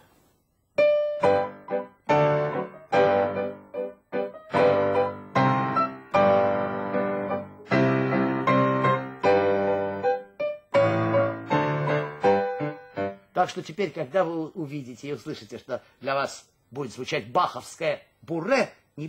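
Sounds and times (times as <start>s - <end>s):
lively piano piece: 0.8s - 14.4s.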